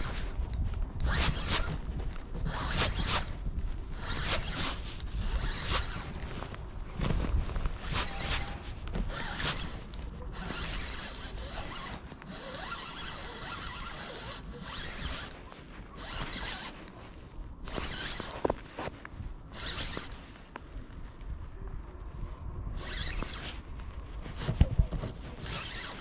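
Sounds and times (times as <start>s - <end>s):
fishing reel whirring: 0.0s - 6.3s, 7.7s - 17.0s, 17.6s - 18.4s, 19.5s - 20.2s, 22.7s - 23.7s, 25.4s - 26.0s.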